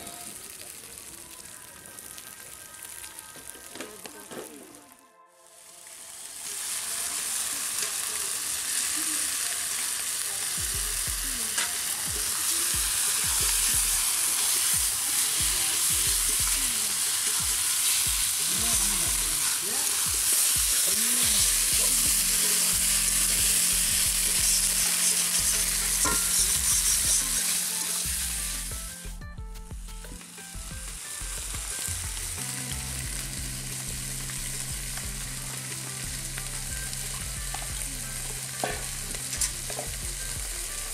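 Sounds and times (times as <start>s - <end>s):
meat sizzling in oil: 0.0s - 4.7s, 5.5s - 29.0s, 30.1s - 40.9s
metal spatula scraping pan: 25.0s - 27.9s.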